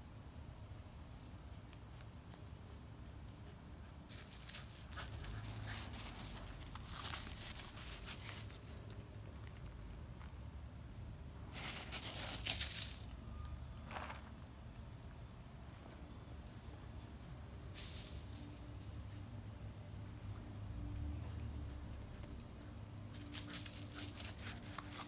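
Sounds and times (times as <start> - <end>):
footsteps crunching on gravel: 23.2 - 25.0.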